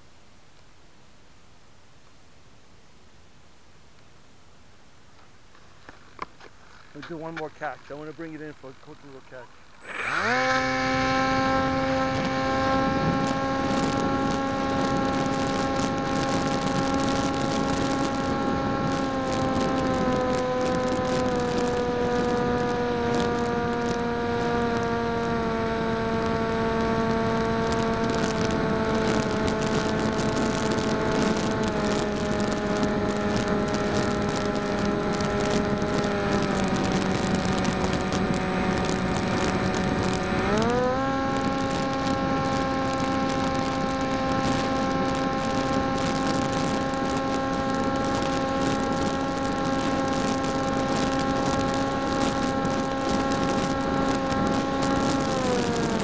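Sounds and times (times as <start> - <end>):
electric motor and propeller whine: 6.7 - 56.0
wind rush: 9.8 - 21.2.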